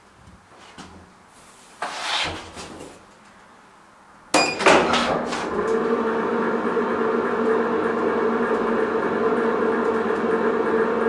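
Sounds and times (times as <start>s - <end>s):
metal door clank and ringing: 4.4s - 5.3s.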